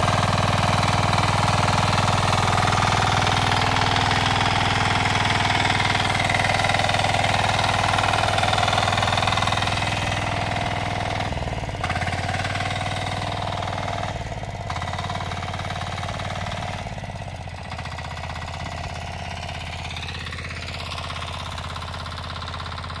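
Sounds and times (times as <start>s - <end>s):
diesel engine running: 0.0s - 23.0s.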